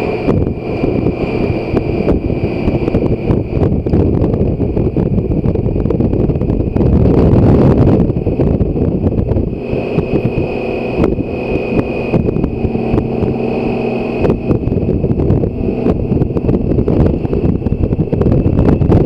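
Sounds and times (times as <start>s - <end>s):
thin high whine: 0.0s - 4.2s, 9.0s - 19.0s
motorcycle engine cruising: 0.0s - 19.0s
wind rushing over microphone: 0.0s - 19.0s.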